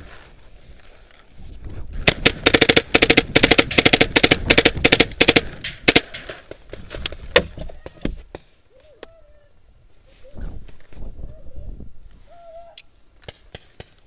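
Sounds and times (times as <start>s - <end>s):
paintball markers firing: 2.0s - 8.2s.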